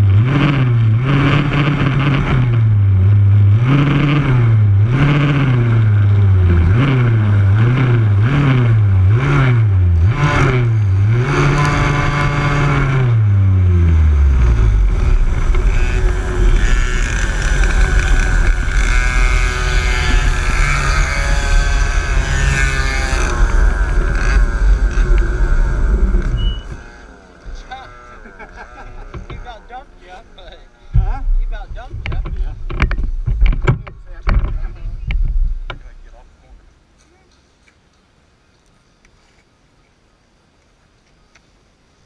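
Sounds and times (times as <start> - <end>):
kart engine revving: 0.0 - 34.9
wind noise: 3.7 - 26.9, 30.9 - 35.9.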